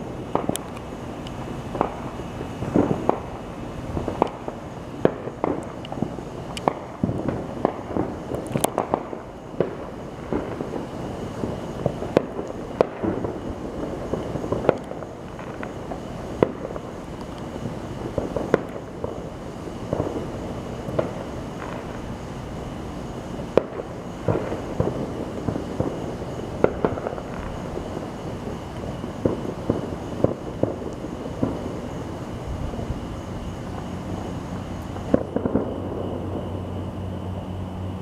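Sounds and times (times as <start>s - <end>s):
distant fireworks pops and booms: 0.0s - 36.6s
rumble of distant bursts: 0.0s - 38.0s.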